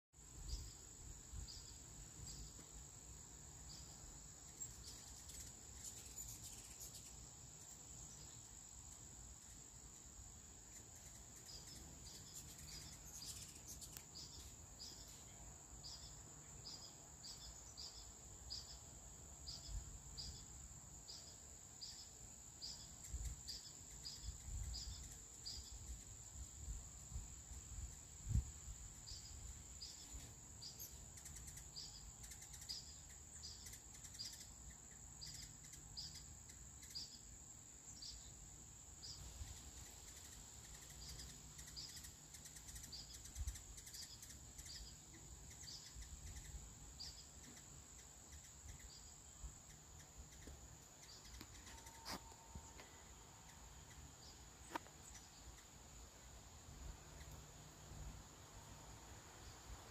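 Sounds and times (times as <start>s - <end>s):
high-pitched insect drone: 39.0s - 55.7s.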